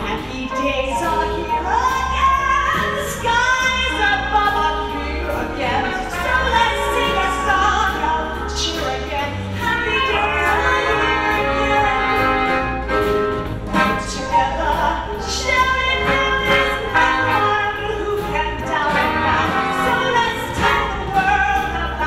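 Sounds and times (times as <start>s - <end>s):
woman singing into a microphone: 0.0s - 12.5s, 14.0s - 22.0s
live band with brass: 0.0s - 22.0s
french horn: 10.1s - 14.5s, 16.1s - 17.9s, 18.9s - 21.1s.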